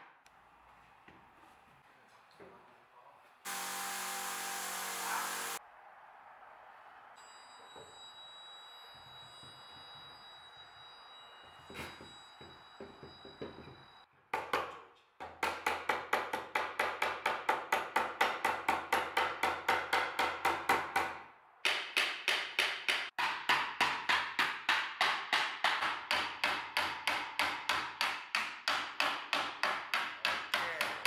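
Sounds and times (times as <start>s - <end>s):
wooden mallet tapping wood: 14.4s - 31.0s.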